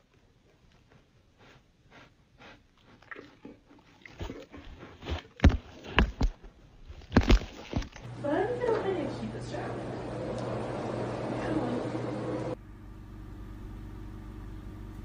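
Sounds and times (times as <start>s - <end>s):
dog sniffing and snuffing: 0.4s - 6.0s.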